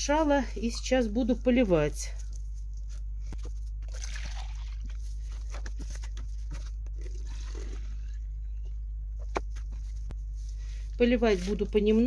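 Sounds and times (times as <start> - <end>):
steady low hum: 0.0 - 12.0
liquid pouring into plastic jug: 3.8 - 5.0, 6.9 - 8.1.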